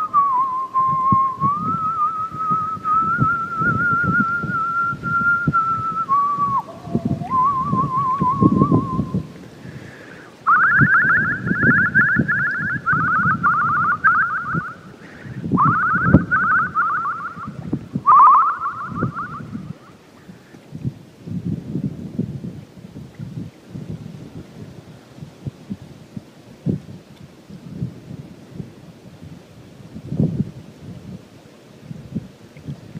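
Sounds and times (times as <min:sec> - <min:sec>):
person whistling a tune: 0:00.0 - 0:09.2, 0:10.5 - 0:14.8, 0:15.5 - 0:19.6.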